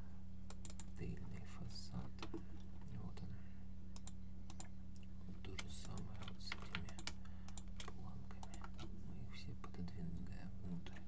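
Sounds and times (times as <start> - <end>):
steady low hum: 0.0 - 11.0
keyboard and mouse clicking: 0.5 - 1.0, 4.0 - 4.7, 5.6 - 8.9.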